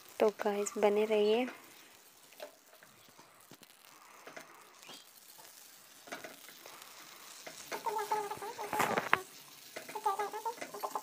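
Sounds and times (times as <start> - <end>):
seeds crackling while roasting: 0.0 - 11.0
spoon scraping a pan: 7.3 - 11.0.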